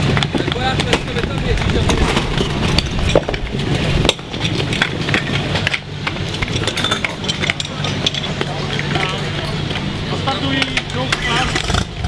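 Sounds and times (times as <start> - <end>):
low rumble: 0.0 - 12.0
hose couplings clicking and knocking: 0.1 - 9.0.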